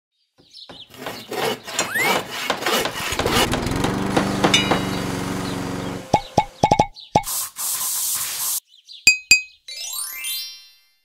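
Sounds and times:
knocks and taps: 0:01.8 - 0:05.1, 0:06.1 - 0:07.3
clinks: 0:04.4 - 0:05.2.

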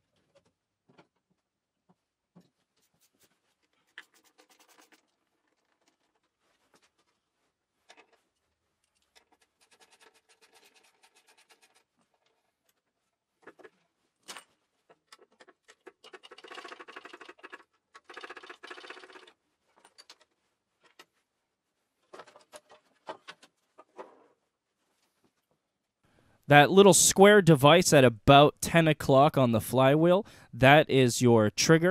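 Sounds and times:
tools scraping and clinking: 0:07.8 - 0:16.5, 0:19.7 - 0:21.2, 0:22.0 - 0:24.4.

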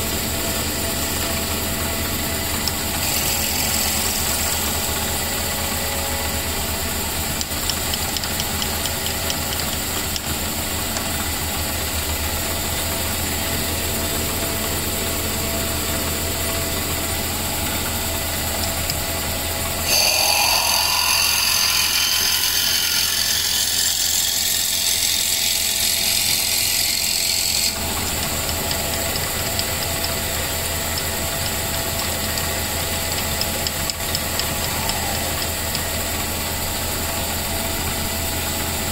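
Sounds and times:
lathe motor hum: 0:00.0 - 0:38.9
drill boring into wood: 0:03.0 - 0:05.2, 0:19.8 - 0:28.1.

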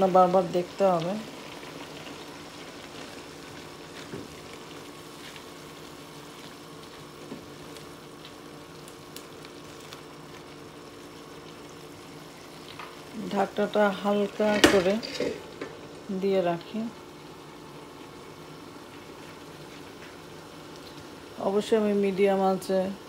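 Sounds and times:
paste sizzling and bubbling in pan: 0:00.0 - 0:23.0
spatula scraping pan: 0:14.4 - 0:15.6.

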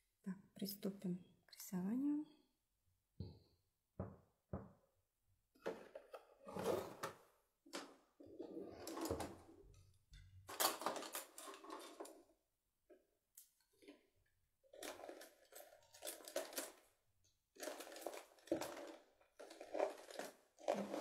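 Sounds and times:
rustling and handling noises: 0:10.4 - 0:12.2, 0:14.7 - 0:16.8, 0:17.6 - 0:21.0.

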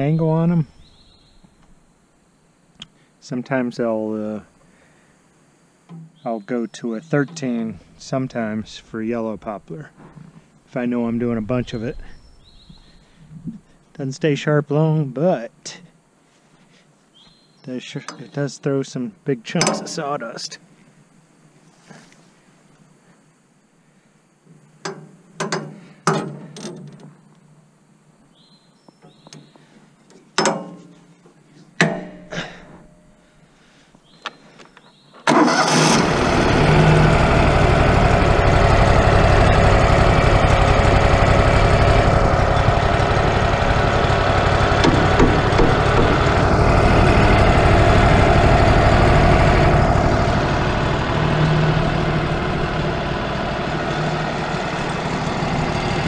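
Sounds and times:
sharp knocks and clicks: 0:24.8 - 0:27.2, 0:30.1 - 0:30.9, 0:44.8 - 0:46.3
sawmill engine running: 0:35.3 - 0:56.0.

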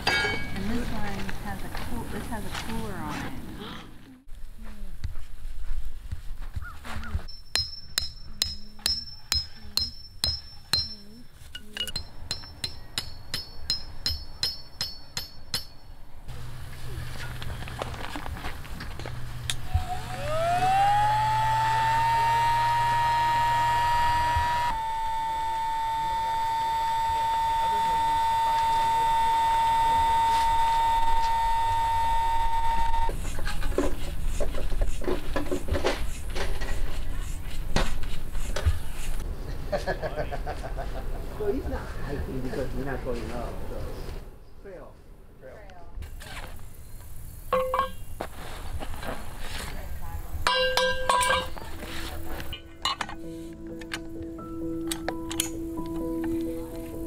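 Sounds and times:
hammer striking metal stake: 0:00.0 - 0:00.7, 0:07.3 - 0:15.9, 0:47.5 - 0:48.1, 0:50.5 - 0:51.6
electric air pump whining: 0:16.3 - 0:33.4
rustling: 0:16.4 - 0:19.7, 0:47.7 - 0:50.0.

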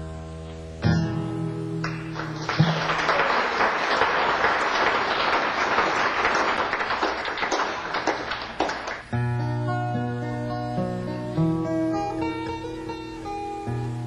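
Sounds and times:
audience applauding: 0:01.8 - 0:09.2.

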